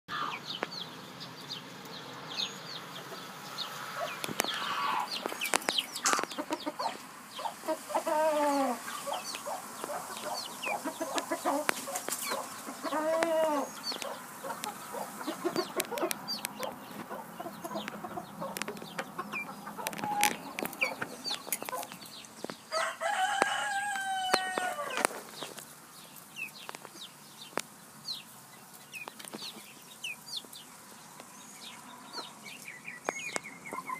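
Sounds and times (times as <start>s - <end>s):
chickens clucking: 0.1s - 33.9s
rooster crowing: 4.0s - 5.2s, 8.0s - 15.0s, 22.7s - 25.2s.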